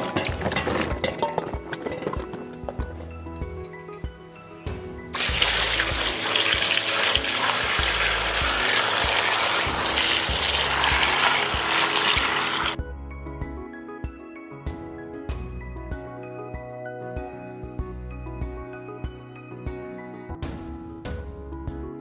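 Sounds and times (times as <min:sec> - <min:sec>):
soft background music: 0:00.0 - 0:22.0
water splashing into basin: 0:05.2 - 0:12.8.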